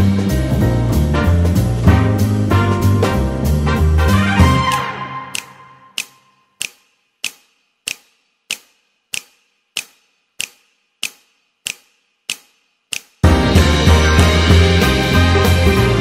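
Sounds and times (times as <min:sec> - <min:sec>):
sharp ticks: 0:04.8 - 0:13.2.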